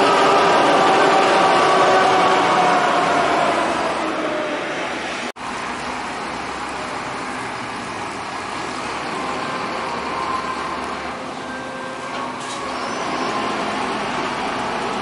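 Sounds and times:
diesel bus engine low revs: 0.0s - 15.0s.

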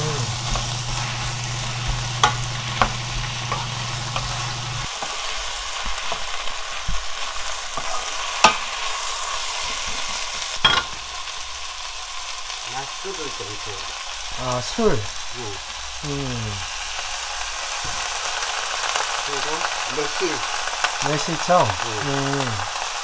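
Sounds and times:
low steady hum: 0.0s - 4.9s
food sizzling in a frying pan: 0.0s - 23.0s.

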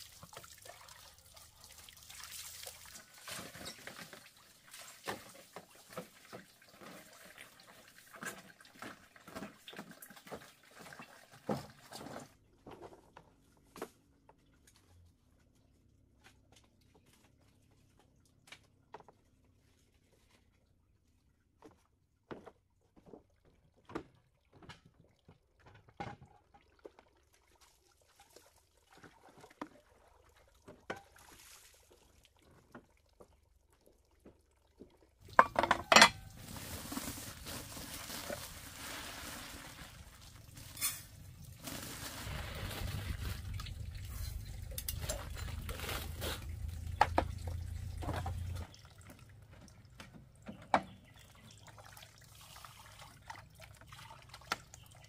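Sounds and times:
water pouring and running: 0.0s - 12.3s, 24.5s - 50.4s, 51.0s - 55.0s
dishes clinking and clattering: 35.3s - 36.4s, 44.0s - 45.7s.

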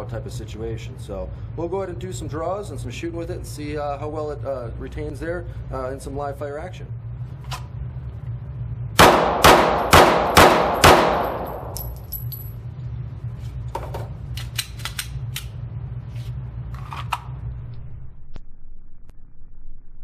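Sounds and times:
steady low hum: 0.0s - 20.0s
pistol shots echoing: 9.0s - 12.0s.

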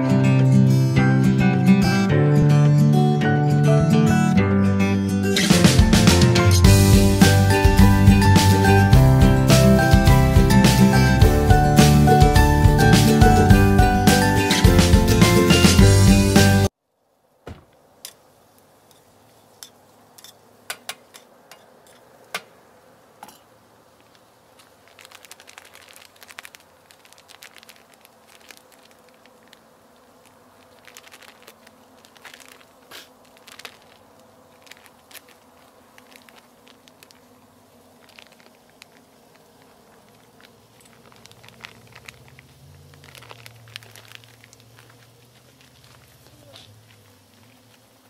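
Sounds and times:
music: 0.0s - 16.7s
food crackling in frying pan: 17.8s - 48.0s
package crinkling: 23.9s - 48.0s.

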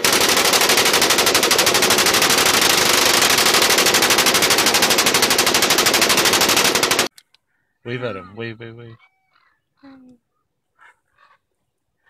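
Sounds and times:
machine gun automatic fire: 0.0s - 7.1s.

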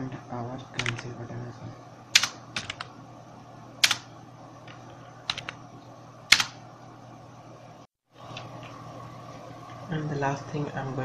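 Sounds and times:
low steady hum: 0.0s - 11.0s
computer keyboard keys clicking: 0.8s - 1.0s, 2.2s - 2.9s, 3.8s - 4.0s, 4.7s - 5.6s, 6.3s - 6.6s.

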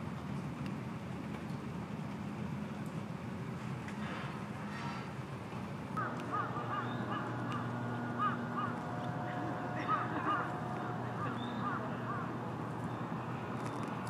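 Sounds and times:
low steady hum: 0.0s - 14.0s
birds chirping: 6.0s - 14.0s.

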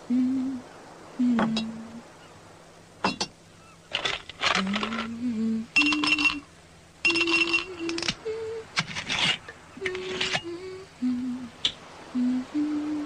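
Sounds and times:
person humming: 0.0s - 0.6s, 1.2s - 2.0s, 4.5s - 8.8s, 9.8s - 13.0s
glass clinking: 3.0s - 3.4s, 5.8s - 6.4s, 7.0s - 8.1s
glass ringing high tone: 5.7s - 8.1s.

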